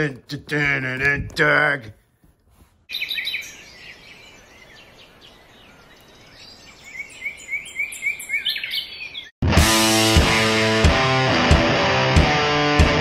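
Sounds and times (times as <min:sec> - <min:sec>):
birds chirping: 0:02.8 - 0:09.4
outdoor background hiss: 0:02.9 - 0:08.0.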